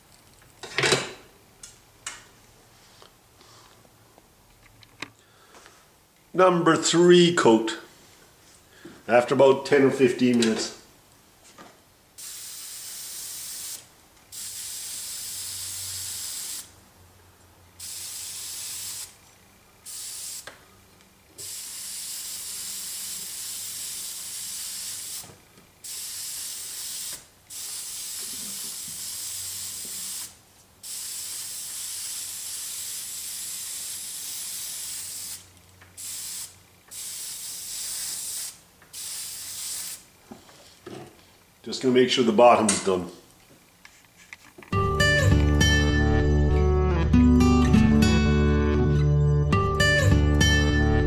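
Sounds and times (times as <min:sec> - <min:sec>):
spray paint hissing: 0:12.2 - 0:16.7, 0:17.8 - 0:19.2, 0:19.8 - 0:20.5, 0:21.4 - 0:40.1.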